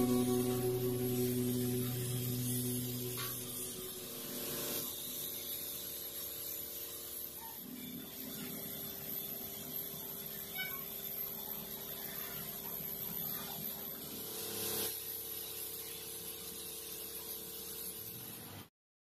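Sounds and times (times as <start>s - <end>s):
steady hum: 0.0s - 5.4s.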